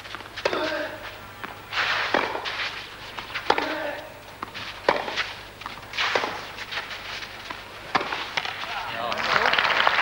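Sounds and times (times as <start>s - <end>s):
racket striking tennis ball: 1.7s - 6.9s, 7.8s - 8.5s.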